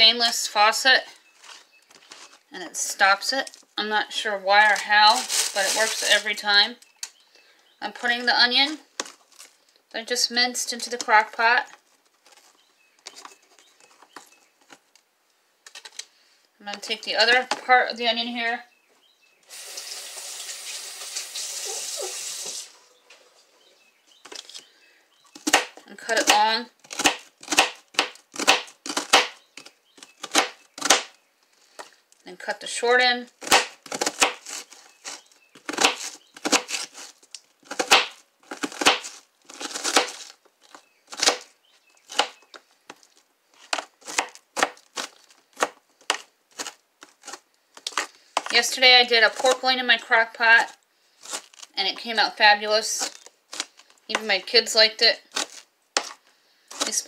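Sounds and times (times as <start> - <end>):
kitchen tap running: 19.5 - 22.8
knife cutting onion on plastic board: 25.4 - 31.1, 33.0 - 40.3, 41.1 - 42.5, 43.6 - 52.2, 52.8 - 57.0.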